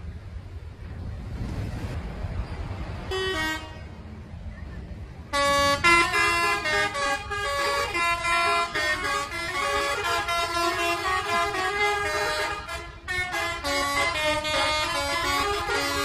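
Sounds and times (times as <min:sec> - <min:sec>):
bus horns playing melodic tunes: 0:03.0 - 0:04.0, 0:05.2 - 0:16.0.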